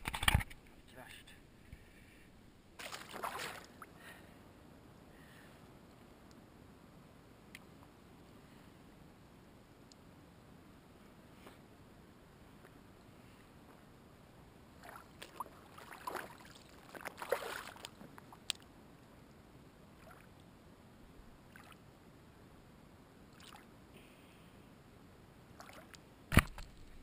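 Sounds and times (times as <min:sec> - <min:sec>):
splashing in shallow water: 0:02.8 - 0:03.9, 0:14.8 - 0:18.6, 0:21.5 - 0:21.8, 0:23.3 - 0:23.7, 0:25.6 - 0:26.7.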